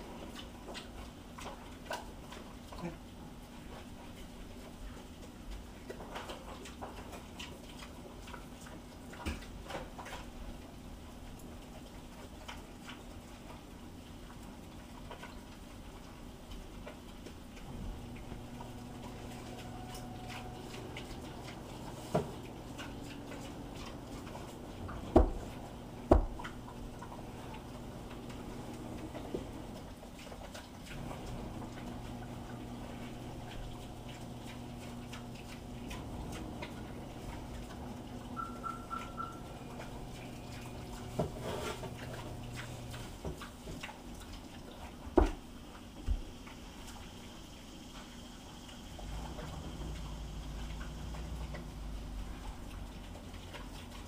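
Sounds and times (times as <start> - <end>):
low steady hum: 0.0 - 54.0
pig chewing wet food: 0.0 - 54.0
dull knocks: 25.1 - 25.4, 26.0 - 26.4.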